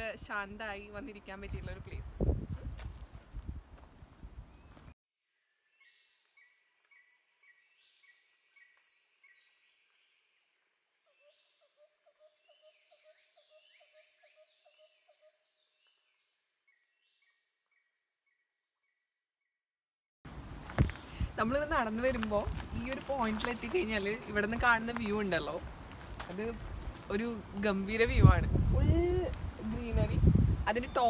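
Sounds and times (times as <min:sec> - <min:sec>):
footsteps on gravel: 0:02.4 - 0:04.0, 0:20.5 - 0:27.4
small birds chirping: 0:04.3 - 0:19.6, 0:20.3 - 0:31.0
high insect drone: 0:20.3 - 0:31.0.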